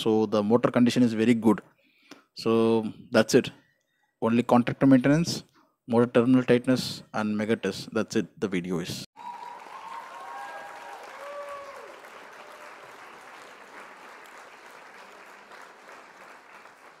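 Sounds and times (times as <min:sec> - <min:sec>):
crowd cries: 0:09.2 - 0:12.8
crowd applause: 0:09.2 - 0:17.0.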